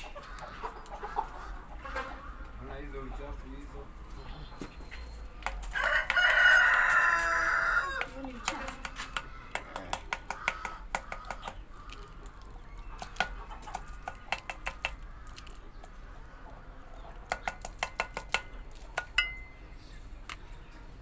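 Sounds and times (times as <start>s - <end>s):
metal clink: 19.1s - 19.6s.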